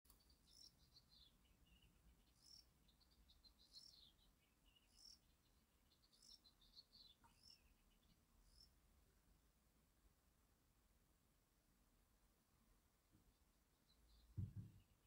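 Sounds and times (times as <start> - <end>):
faint high-pitched chirping calls: 0.1 - 8.9, 13.2 - 15.0.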